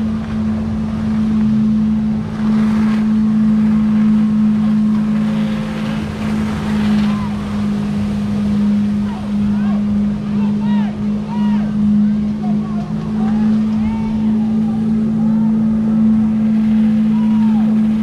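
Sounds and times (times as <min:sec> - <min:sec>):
boat engine idling: 0:00.0 - 0:18.0
faint voices: 0:08.9 - 0:18.0.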